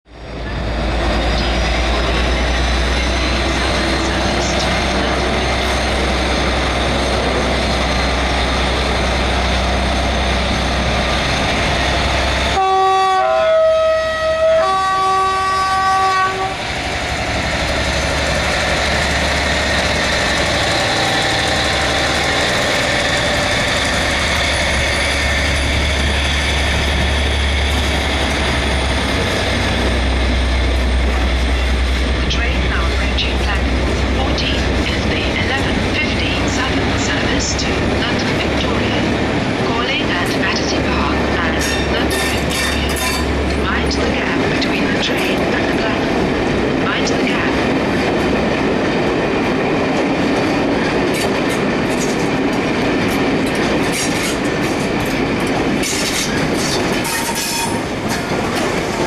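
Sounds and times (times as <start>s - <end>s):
diesel locomotive engine humming: 0.1s - 59.0s
two-tone train horn: 12.5s - 16.6s.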